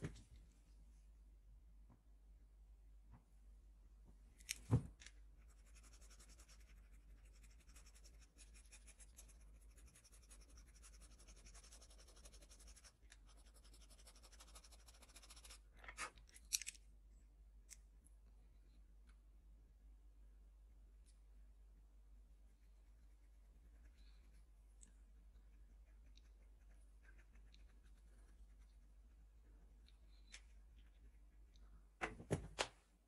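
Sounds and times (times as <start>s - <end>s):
pencil scratching on paper: 5.5s - 15.6s.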